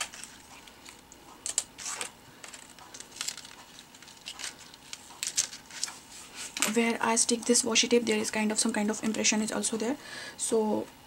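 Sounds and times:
cardstock crinkling: 0.0 - 6.7.

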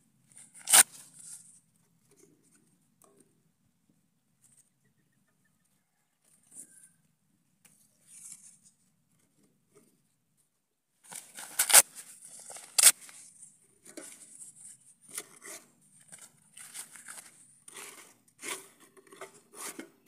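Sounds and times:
cardboard tearing and crinkling: 0.4 - 1.5, 11.1 - 13.3
cardboard ripping: 0.5 - 1.3, 11.1 - 13.2.

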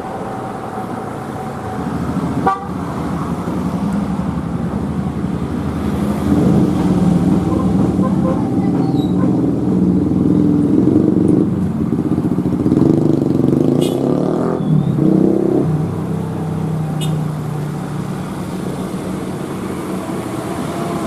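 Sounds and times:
heavy engine low rumble: 0.0 - 12.7
road traffic passing: 0.0 - 21.0
car horn toot: 2.4 - 2.8, 13.8 - 14.1, 17.0 - 17.3.

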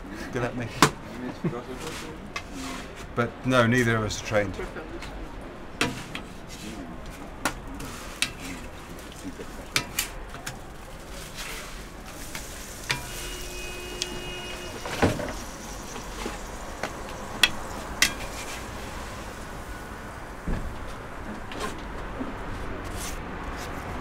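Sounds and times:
batter sizzling on griddle: 7.8 - 21.2.

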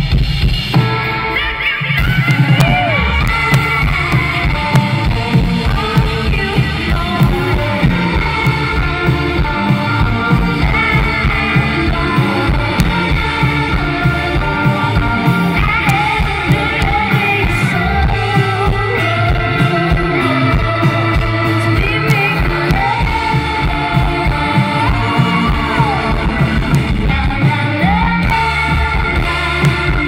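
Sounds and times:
live rock band playing: 0.0 - 30.0
woman singing: 1.3 - 30.0.

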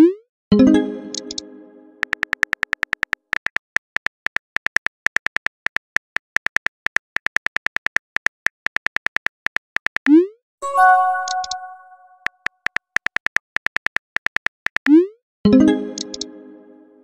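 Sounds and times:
message sent swoosh: 10.6 - 12.2.

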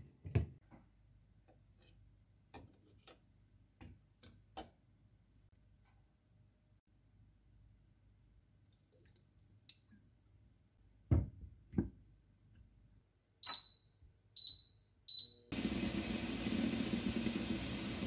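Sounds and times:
cooktop touch control beeps: 13.4 - 15.5
water boiling hard: 15.6 - 18.0.

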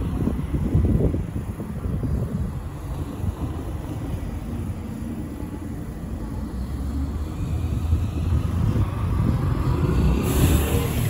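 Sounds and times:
rumble of trams and traffic: 0.0 - 11.0
short burst of hiss: 10.2 - 11.0.

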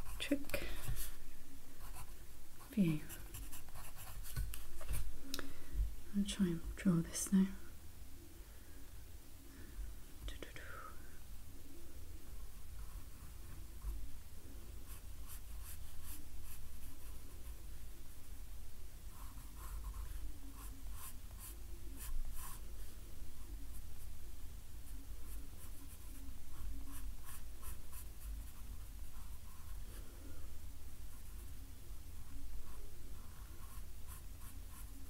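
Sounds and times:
pencil scratching on paper: 1.8 - 5.0, 19.1 - 22.6, 25.2 - 29.8.

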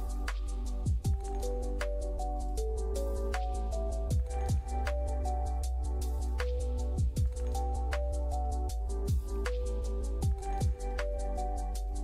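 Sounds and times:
deep bass: 0.0 - 12.0
hi-hat ticks: 0.0 - 12.0
electronic kick drum hits: 4.1 - 4.9, 7.0 - 7.4, 9.1 - 9.4, 10.2 - 11.0.

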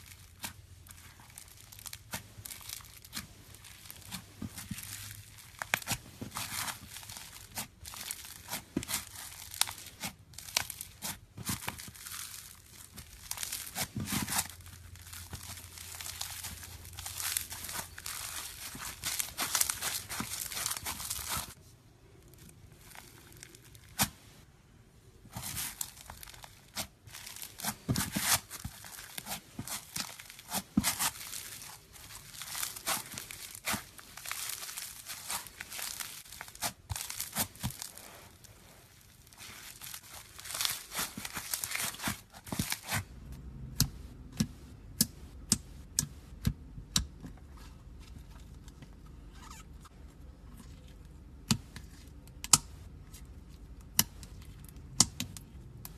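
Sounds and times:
slime crackling and tearing: 0.0 - 24.3, 25.3 - 43.9.

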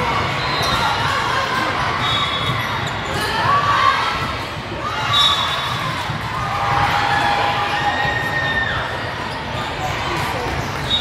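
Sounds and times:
murmur of spectators: 0.0 - 11.0
sneakers squeaking on floor: 0.2 - 1.2, 2.0 - 3.6, 5.0 - 5.9, 10.5 - 11.0.

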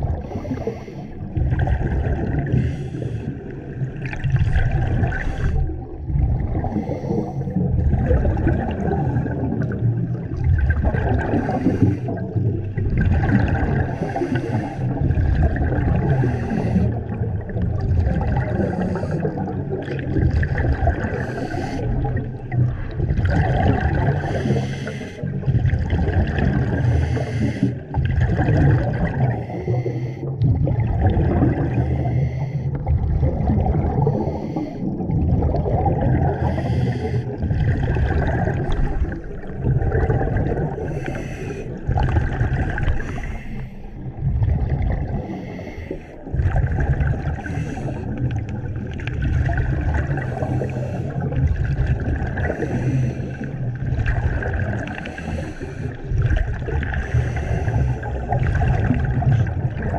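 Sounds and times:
exhaled bubbles gurgling underwater: 0.0 - 59.9
hissing regulator breaths: 24.3 - 25.2.

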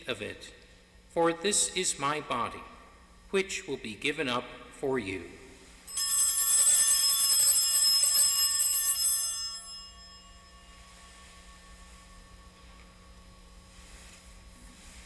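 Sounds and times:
altar bells ringing: 5.9 - 14.6.

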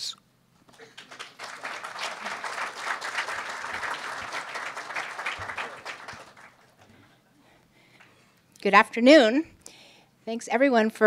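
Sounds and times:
audience applauding: 0.7 - 7.1.

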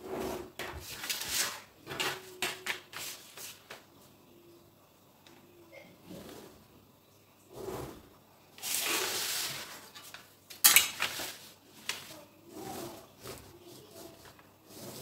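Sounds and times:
paper rustling and sliding: 0.0 - 3.9, 8.6 - 10.3, 10.9 - 15.0.

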